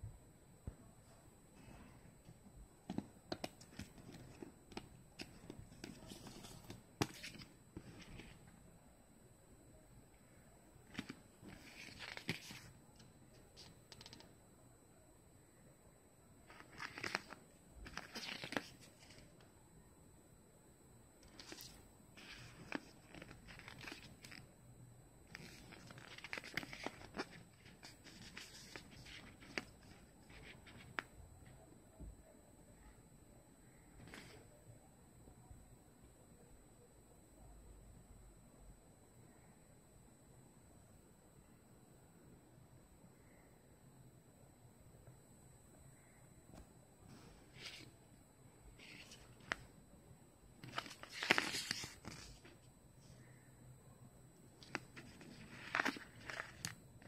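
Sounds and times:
paper booklet pages rustling: 1.6s - 8.5s, 10.8s - 14.3s, 16.4s - 19.5s, 21.2s - 24.5s, 25.2s - 31.2s, 34.0s - 34.4s, 47.1s - 48.0s, 48.7s - 49.7s, 50.5s - 52.7s, 54.5s - 57.0s.

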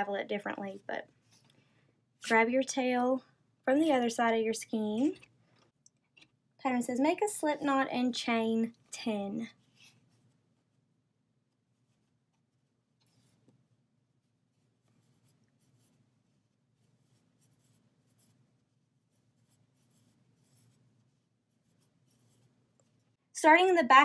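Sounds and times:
crochet hook rustling yarn: 0.4s - 2.4s, 7.1s - 23.2s.

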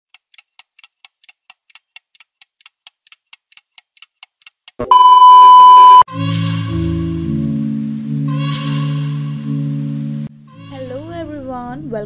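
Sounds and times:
ticking sound effect: 0.1s - 5.0s
loud high beep: 4.9s - 6.1s.

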